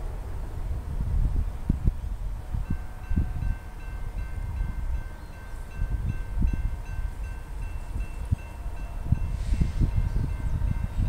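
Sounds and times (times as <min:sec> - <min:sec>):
wind rumble on microphone: 0:00.0 - 0:11.0
crossing warning bell ringing: 0:02.6 - 0:11.0.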